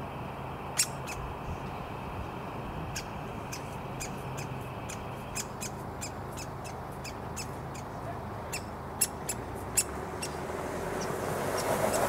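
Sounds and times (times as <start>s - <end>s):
woodpecker chick begging calls: 0.8s - 1.3s, 2.8s - 7.9s, 8.5s - 12.0s.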